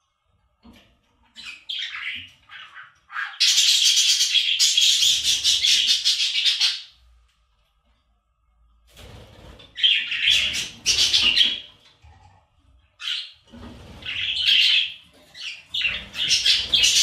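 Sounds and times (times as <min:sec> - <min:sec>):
budgerigar chirping and warbling: 0:01.4 - 0:06.9, 0:14.0 - 0:17.0.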